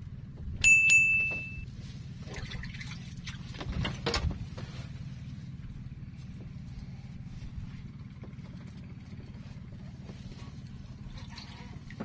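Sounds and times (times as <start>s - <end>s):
low hum: 0.0s - 12.0s
water splashing: 2.2s - 4.0s.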